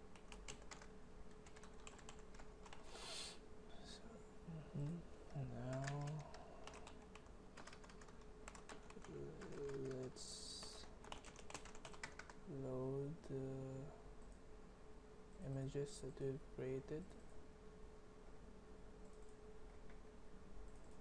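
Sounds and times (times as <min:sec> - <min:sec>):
typing on computer keyboard: 0:00.1 - 0:02.8, 0:05.6 - 0:12.4.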